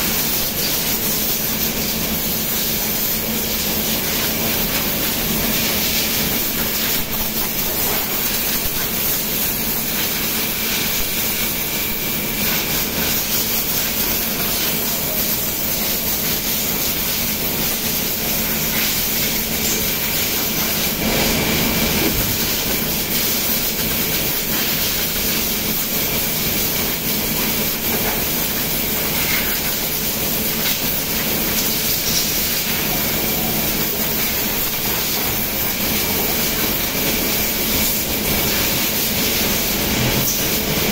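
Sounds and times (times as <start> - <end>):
low machine hum: 19.4 - 24.0.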